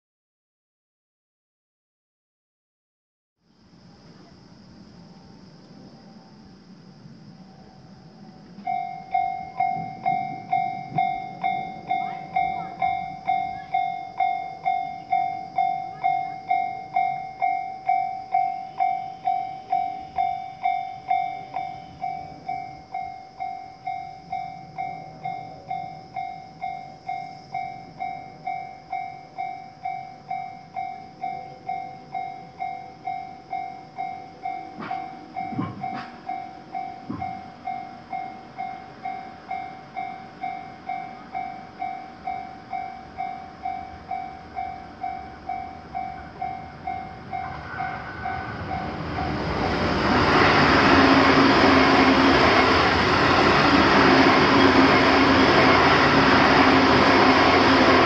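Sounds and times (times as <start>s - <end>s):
electric train passing: 3.5s - 58.0s
railroad crossing bell ringing: 7.6s - 58.0s.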